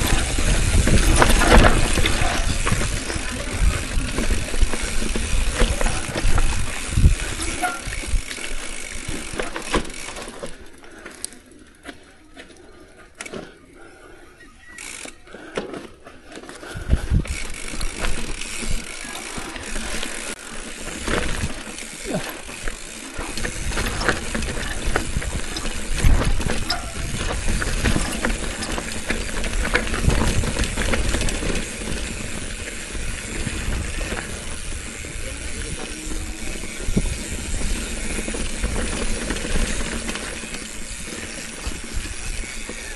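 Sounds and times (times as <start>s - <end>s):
bicycle rattling and knocking: 0.0s - 12.1s, 14.8s - 42.9s.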